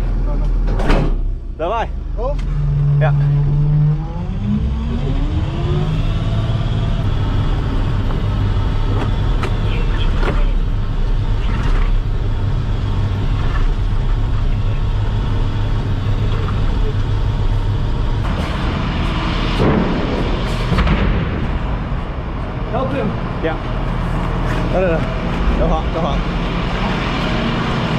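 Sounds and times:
diesel engine running: 0:00.0 - 0:27.9
knocks and rattles: 0:18.2 - 0:25.7.

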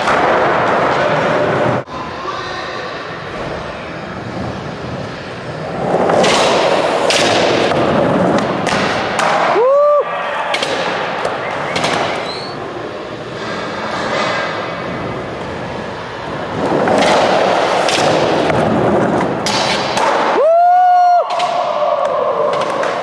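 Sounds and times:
skateboard wheels rolling: 0:03.3 - 0:23.0
short rising squeal: 0:12.1 - 0:12.6.

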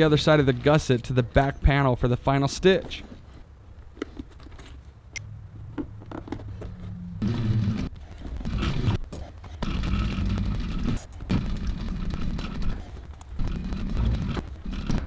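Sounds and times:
sewing machine stitching: 0:09.6 - 0:12.8, 0:13.4 - 0:15.0.

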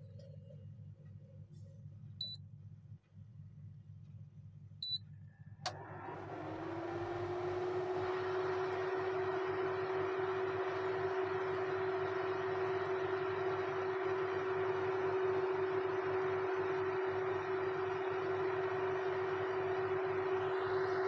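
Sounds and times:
control panel beeps: 0:02.2 - 0:02.4, 0:04.8 - 0:05.0
cooling fan whirring: 0:04.8 - 0:21.0
click: 0:05.6 - 0:05.8.

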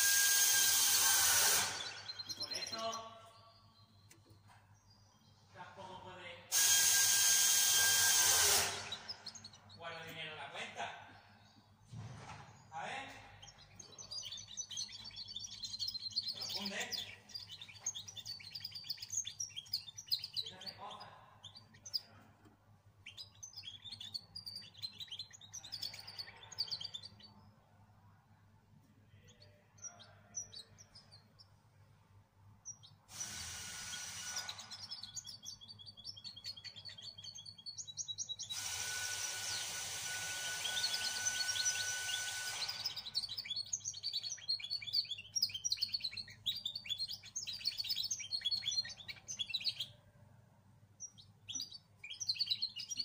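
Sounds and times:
songbird twittering: 0:01.3 - 0:05.4, 0:07.8 - 0:11.7, 0:13.3 - 0:22.2, 0:23.0 - 0:27.6, 0:34.1 - 0:38.6, 0:40.4 - 0:50.0, 0:51.0 - 0:53.0
loud steady hiss: 0:33.1 - 0:34.6, 0:38.5 - 0:41.2.

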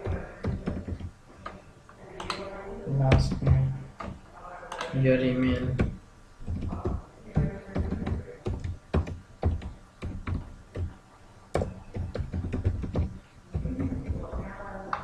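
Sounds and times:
computer keyboard typing: 0:00.0 - 0:02.5, 0:05.6 - 0:11.0, 0:11.6 - 0:15.0.

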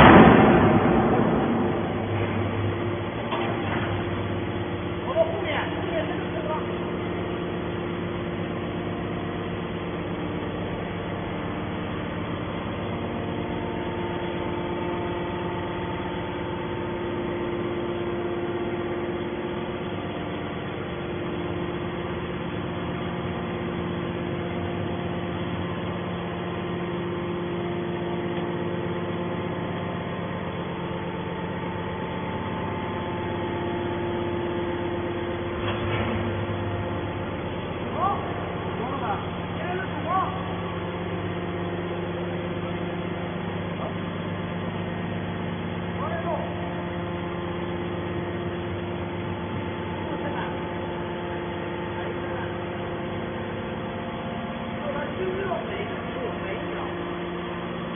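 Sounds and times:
hydraulic pump humming: 0:00.0 - 0:57.9.

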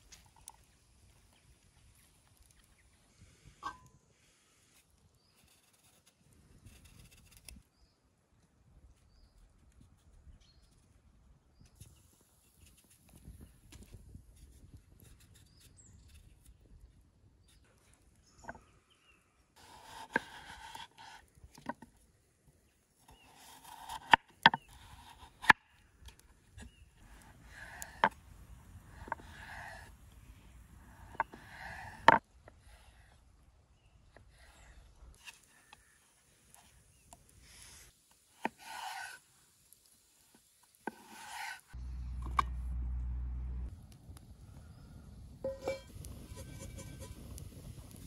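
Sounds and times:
low steady rumble: 0:41.8 - 0:47.2.

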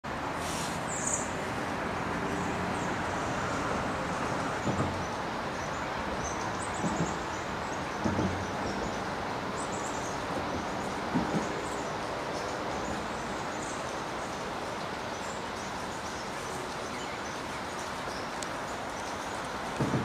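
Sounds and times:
rushing outdoor background noise: 0:00.0 - 0:20.0
soft low knocks: 0:19.7 - 0:20.0.

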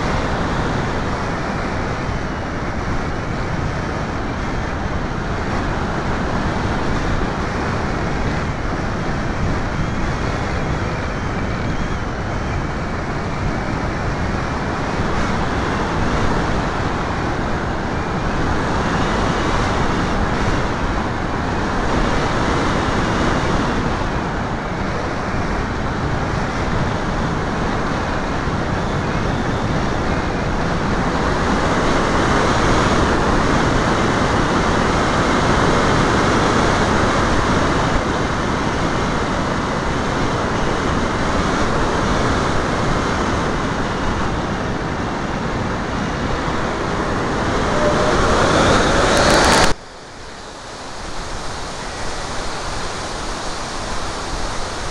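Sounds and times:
wind rushing over microphone: 0:00.0 - 0:54.9
model airplane motor whine: 0:46.6 - 0:49.8.

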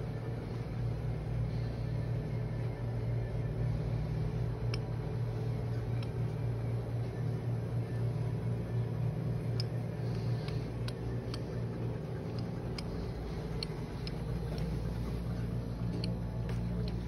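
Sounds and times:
mechanical hum of shop equipment: 0:00.0 - 0:17.0
light ticks and clicks: 0:04.6 - 0:05.0, 0:09.4 - 0:17.0.

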